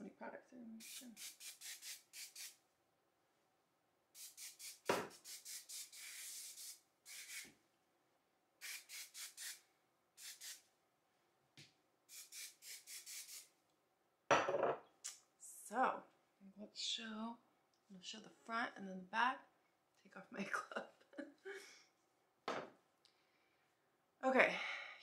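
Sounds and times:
hairspray hissing: 0.8 - 2.6, 4.2 - 7.5, 8.6 - 9.6, 10.2 - 10.6, 12.1 - 13.5
knock: 22.5 - 22.7.

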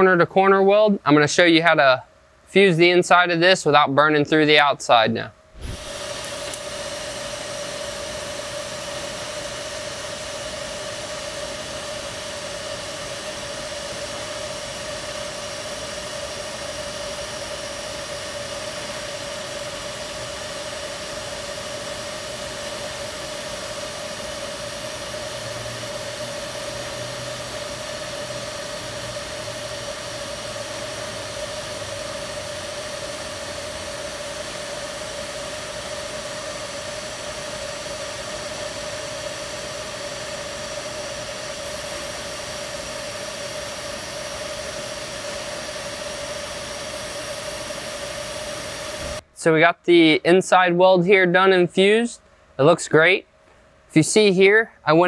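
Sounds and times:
welding arc hissing and buzzing: 5.5 - 49.3.

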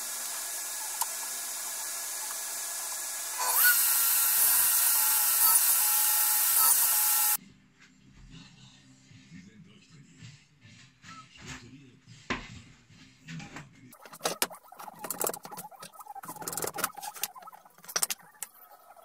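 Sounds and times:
table saw motor whining: 0.0 - 7.4
workshop machine noise: 0.0 - 7.4, 13.9 - 18.4.

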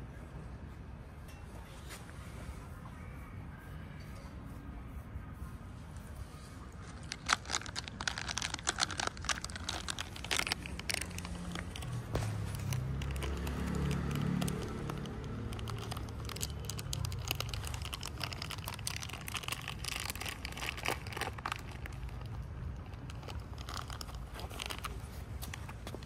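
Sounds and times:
plastic food packet crinkling: 6.8 - 25.7.

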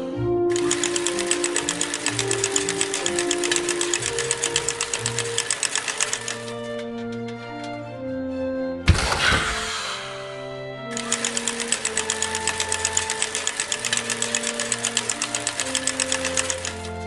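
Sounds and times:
light background music: 0.0 - 17.0
mechanical conveyor clatter: 0.5 - 6.5, 11.0 - 16.9.

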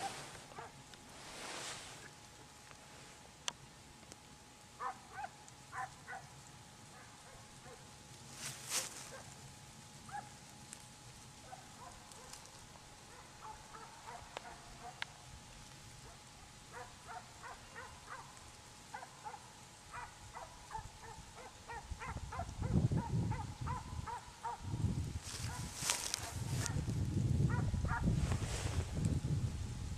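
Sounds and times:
distant dogs baying: 0.0 - 0.8, 4.8 - 6.3, 6.9 - 7.9, 10.1 - 10.4, 11.4 - 15.1, 16.0 - 24.7, 27.5 - 28.1.

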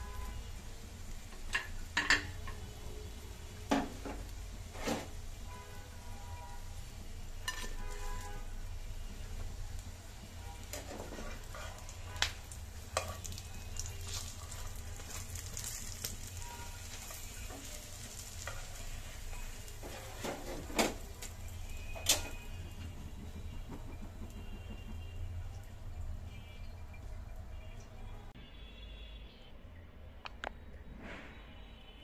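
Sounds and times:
flatbread sizzling in oil: 0.0 - 28.1
metal spatula clacking on pan: 7.4 - 7.8.

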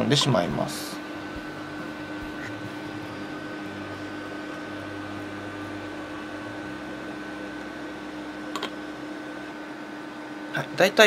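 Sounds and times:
background hum and hiss: 0.0 - 11.0
constant high whine: 0.0 - 11.0.

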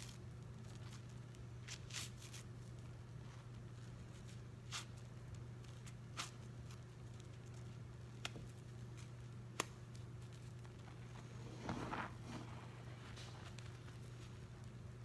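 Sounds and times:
wet sponge squishes: 0.0 - 9.1
steady low hum: 0.0 - 15.0
sponge tearing: 4.2 - 5.1.

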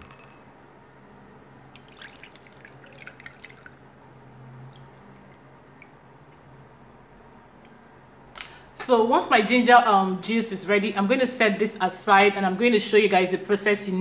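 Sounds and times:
liquid trickling and dripping: 1.7 - 6.5.

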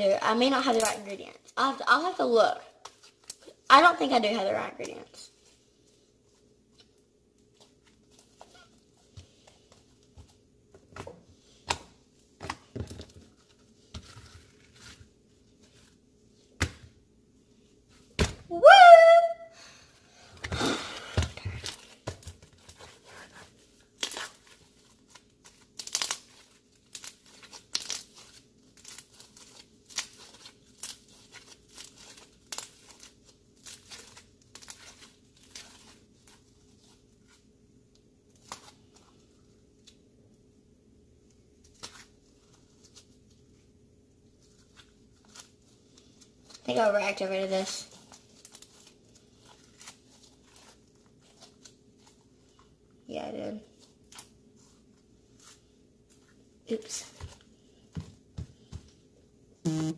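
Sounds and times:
slime squeak: 8.4 - 8.8, 59.7 - 59.9.

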